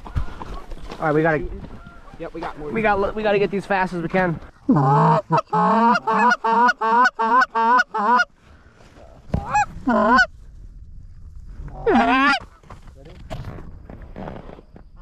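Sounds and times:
goose honks: 4.8s - 8.3s.

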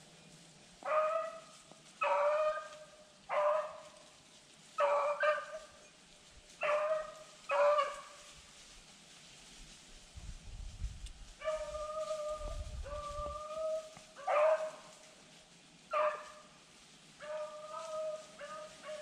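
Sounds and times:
hounds baying and howling: 0.8s - 4.1s, 4.8s - 8.3s, 11.4s - 15.0s, 15.9s - 16.5s, 17.2s - 19.0s.

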